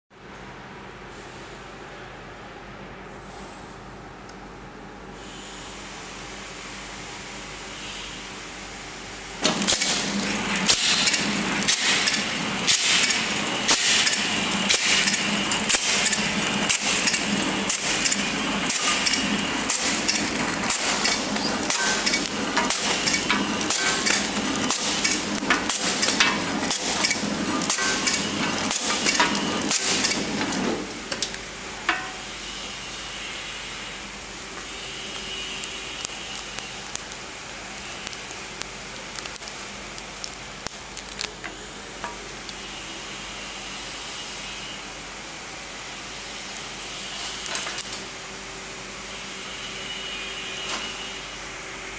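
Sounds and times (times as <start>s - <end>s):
sharp machine stroke: 9.4s - 30.6s
packing machine clattering: 9.4s - 31.4s.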